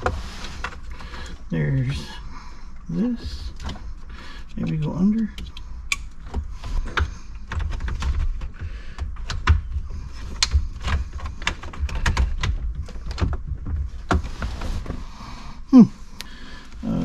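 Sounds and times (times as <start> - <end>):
clicks and taps of plastic parts: 4.4 - 14.3.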